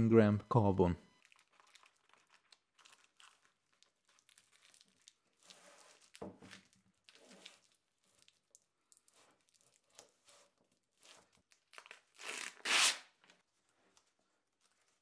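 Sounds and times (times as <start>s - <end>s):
plastic film peeling off: 1.2s - 10.2s, 10.8s - 13.4s.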